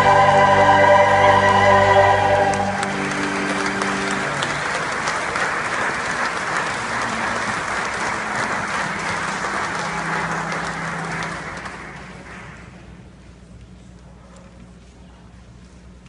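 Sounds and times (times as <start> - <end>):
choir and organ chord: 0.0 - 4.7
congregation applauding: 0.0 - 13.0.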